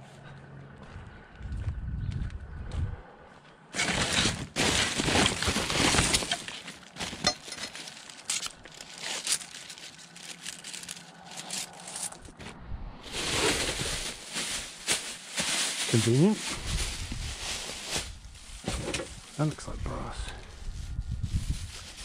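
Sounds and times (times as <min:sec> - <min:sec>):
debris knocking and rattling: 0:03.8 - 0:08.5
rubbish crackling and clattering: 0:03.8 - 0:12.4, 0:13.1 - 0:19.4.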